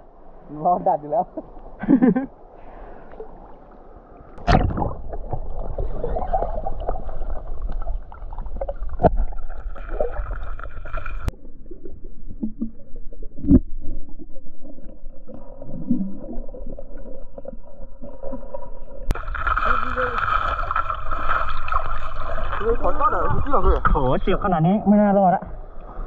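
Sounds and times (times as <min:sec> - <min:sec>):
muffled underwater stream gurgling: 0:02.6 - 0:26.0
sharp knocks underwater: 0:04.4 - 0:11.3, 0:13.4 - 0:14.0.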